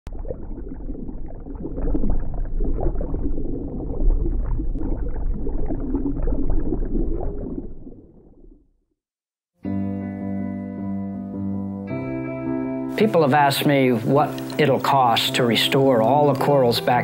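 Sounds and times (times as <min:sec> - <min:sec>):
underwater air bubbles gurgling: 0:00.1 - 0:08.7.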